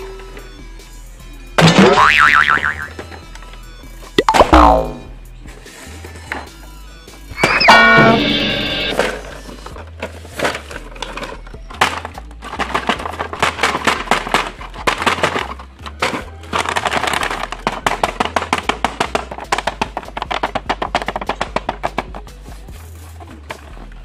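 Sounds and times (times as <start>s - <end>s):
background music with bass: 0.2s - 10.0s.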